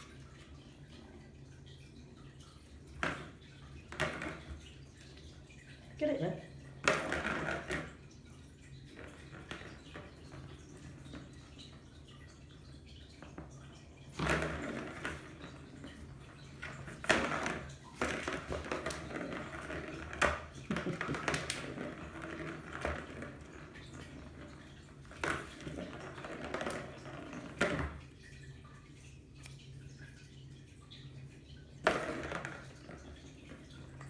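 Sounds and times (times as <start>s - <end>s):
plastic ball rattling in track: 6.8s - 8.0s.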